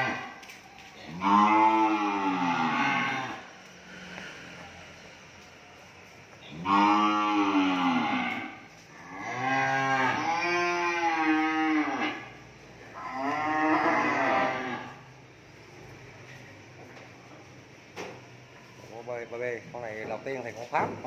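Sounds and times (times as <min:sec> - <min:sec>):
cow mooing: 0:01.1 - 0:03.5, 0:06.5 - 0:15.1.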